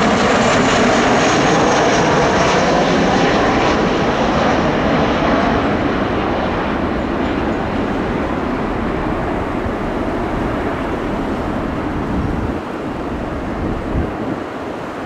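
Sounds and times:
jet engines rushing: 0:00.0 - 0:15.0
wind on microphone: 0:00.0 - 0:15.0.

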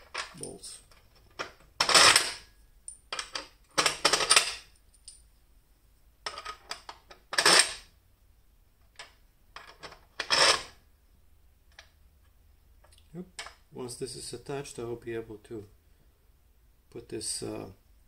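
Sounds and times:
metal parts clattering on metal: 0:00.0 - 0:02.5, 0:03.1 - 0:04.7.

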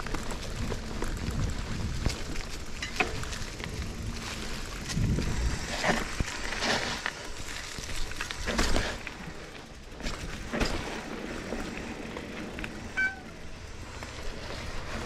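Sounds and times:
bike rattling over bumps: 0:00.0 - 0:15.0
bike tyres rolling over dirt: 0:00.0 - 0:15.0
brief squeak: 0:12.9 - 0:13.4.

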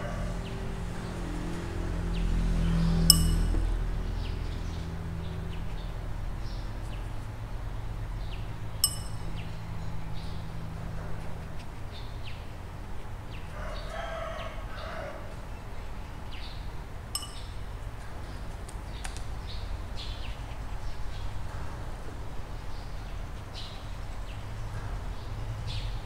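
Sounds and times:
light clink: 0:03.1 - 0:03.7, 0:08.8 - 0:09.6, 0:17.2 - 0:17.6
rooster crowing: 0:13.5 - 0:15.4
small birds chirping: 0:16.0 - 0:21.6.

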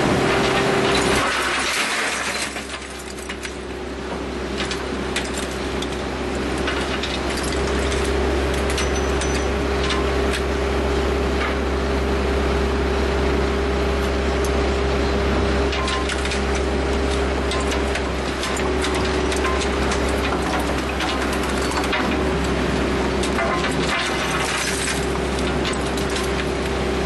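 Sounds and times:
crusher machine humming: 0:00.0 - 0:27.0.

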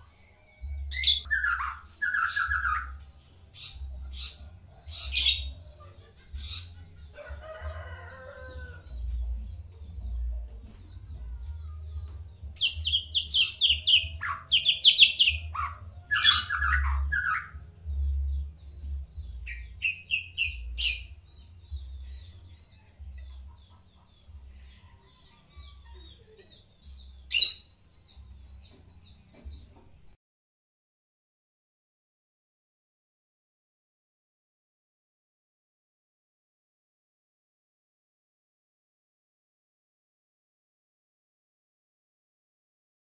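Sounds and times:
songbird singing: 0:00.0 - 0:30.2.

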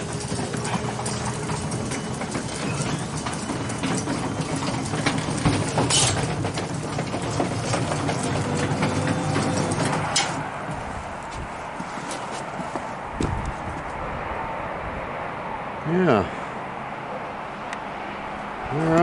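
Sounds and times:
garage door clatter: 0:00.0 - 0:10.9
garage door opener motor hum: 0:00.0 - 0:11.0
door rollers and chain rattling: 0:00.0 - 0:11.3.

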